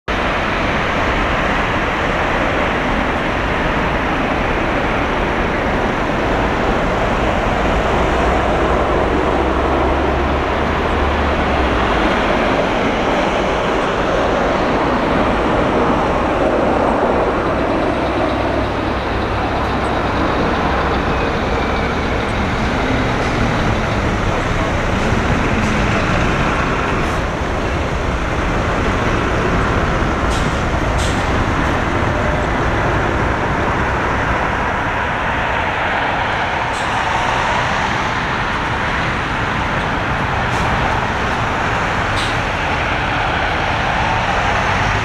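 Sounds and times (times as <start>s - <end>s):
jet engines rushing: 0.1s - 45.0s.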